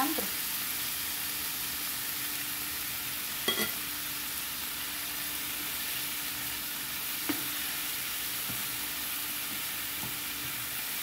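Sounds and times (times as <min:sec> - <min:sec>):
food sizzling in a frying pan: 0:00.0 - 0:11.0
spoon clacking against pan: 0:03.5 - 0:03.8.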